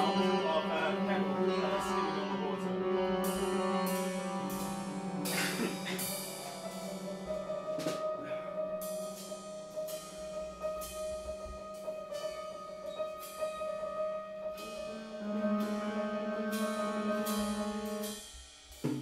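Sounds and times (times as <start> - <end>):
piano notes: 0.0 - 18.2
drum and cymbal strikes: 3.1 - 19.0.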